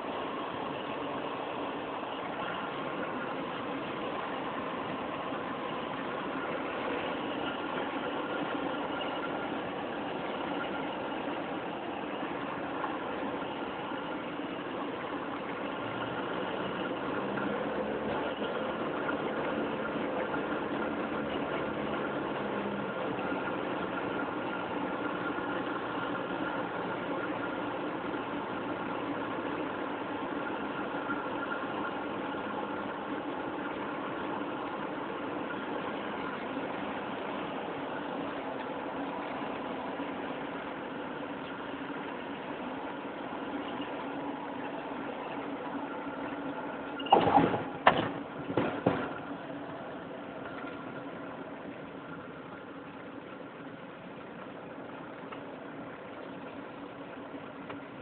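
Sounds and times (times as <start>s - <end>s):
aircraft engine and cabin noise: 30.2s - 58.0s.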